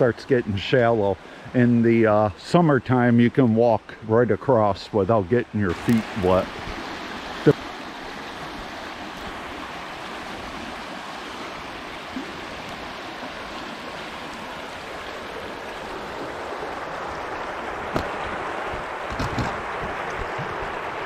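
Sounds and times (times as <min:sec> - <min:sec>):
river rushing over rocks: 0:05.7 - 0:21.0.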